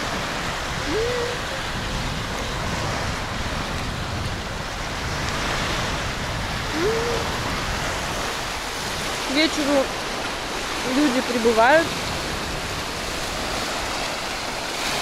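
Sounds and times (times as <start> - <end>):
small waves washing onto sand: 0.0 - 15.0
wind buffeting microphone: 0.0 - 15.0
person humming while chewing: 0.8 - 1.5, 6.7 - 7.4.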